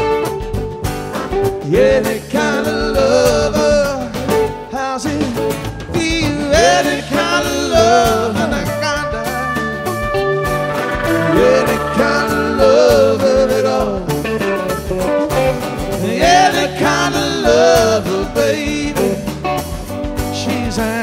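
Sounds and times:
live rock band playing: 0:00.0 - 0:01.9, 0:03.3 - 0:21.0
bending lead guitar melody: 0:08.5 - 0:16.0.

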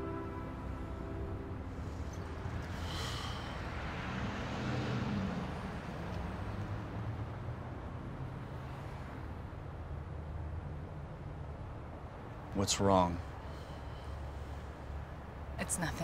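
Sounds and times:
vehicle passing: 0:00.0 - 0:09.3
road traffic rumble: 0:00.0 - 0:16.0.

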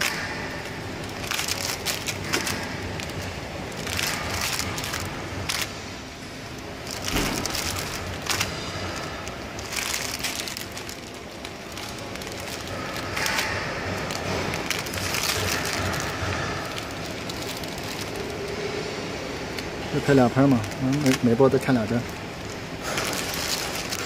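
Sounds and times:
plastic bags crinkling: 0:00.0 - 0:24.0.

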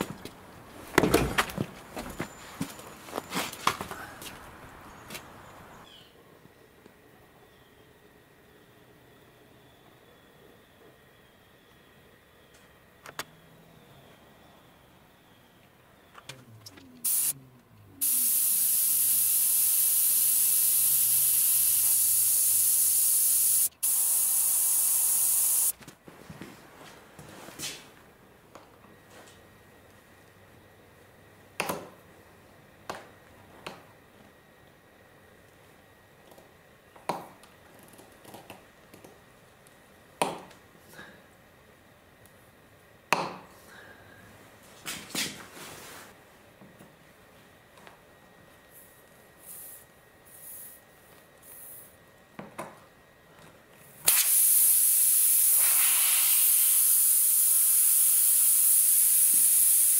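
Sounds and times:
air hissing through tire valve: 0:17.0 - 0:17.4, 0:18.0 - 0:25.7, 0:49.4 - 0:50.8, 0:51.4 - 0:51.9, 0:54.1 - 0:59.9.

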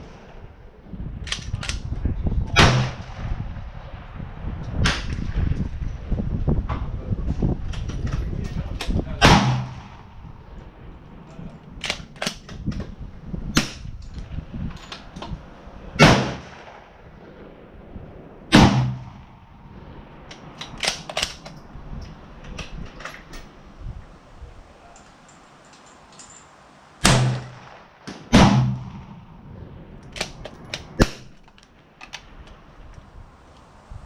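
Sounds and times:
rifle shots: 0:02.6 - 0:03.5, 0:09.2 - 0:10.2, 0:16.0 - 0:17.2, 0:18.5 - 0:19.5, 0:27.0 - 0:29.3, 0:30.1 - 0:31.4
faint cracks and clacks: 0:24.8 - 0:26.6, 0:30.0 - 0:33.7.

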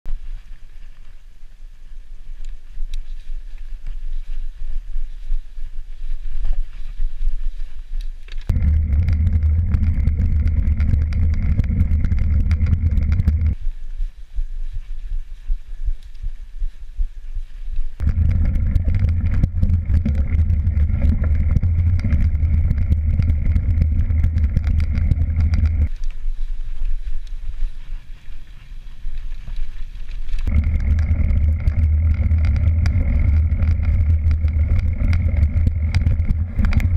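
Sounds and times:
bike trail rumble: 0:00.1 - 0:16.9, 0:17.8 - 0:36.9
steady low hum: 0:00.1 - 0:29.2, 0:30.1 - 0:36.9
wind buffeting: 0:08.5 - 0:13.8, 0:17.9 - 0:26.0, 0:30.4 - 0:36.9.

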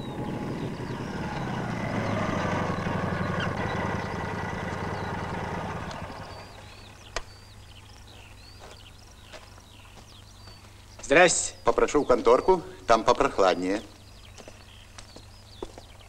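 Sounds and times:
motorcycle engine pulsing: 0:00.0 - 0:07.5
birds chirping: 0:00.0 - 0:16.0.

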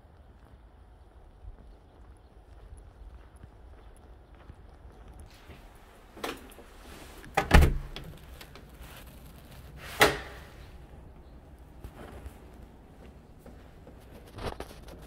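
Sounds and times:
door shutting with thud: 0:07.3 - 0:08.1.

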